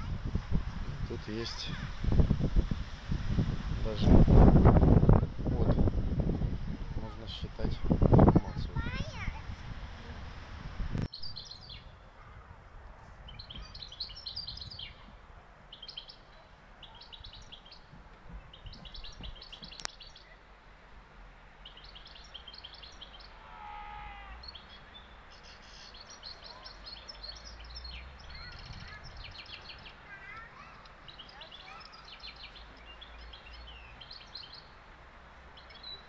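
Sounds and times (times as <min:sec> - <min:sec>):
songbirds trilling: 0:01.0 - 0:02.4, 0:11.1 - 0:12.6, 0:13.2 - 0:20.5, 0:21.5 - 0:36.0.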